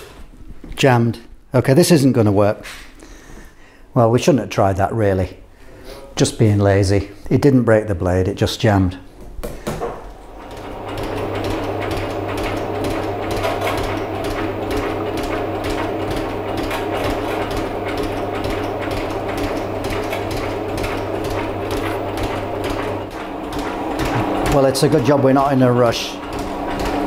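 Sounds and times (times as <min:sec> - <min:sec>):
motor humming: 0:09.6 - 0:27.0
shaper ram stroking rhythmically: 0:10.2 - 0:27.0.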